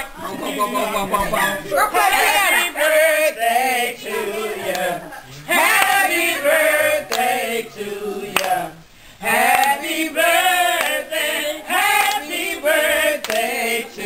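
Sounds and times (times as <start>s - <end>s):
group of adults singing: 0.0s - 14.0s
hands clapping: 4.7s - 5.0s, 5.7s - 6.0s, 7.1s - 7.3s, 8.3s - 8.6s, 9.5s - 9.8s, 10.8s - 11.0s, 11.9s - 12.4s, 13.2s - 13.6s.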